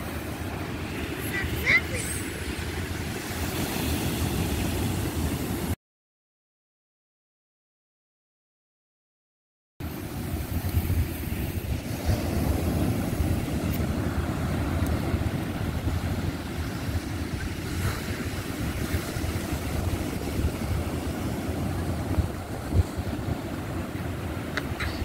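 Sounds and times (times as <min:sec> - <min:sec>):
surf breaking on beach: 0:00.0 - 0:05.8, 0:09.8 - 0:25.0
wind rumbling on microphone: 0:09.8 - 0:25.0.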